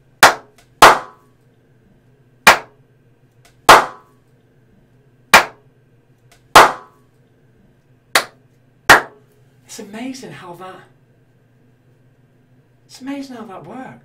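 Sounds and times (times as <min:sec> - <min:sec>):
sharp hand claps: 0:00.2 - 0:01.2, 0:02.5 - 0:02.8, 0:05.3 - 0:05.6, 0:06.3 - 0:06.9, 0:08.2 - 0:09.2.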